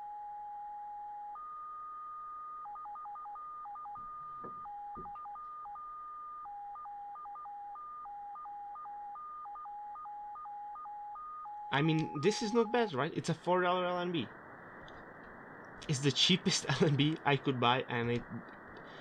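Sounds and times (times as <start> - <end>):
receiver hiss: 11.7 - 19.0.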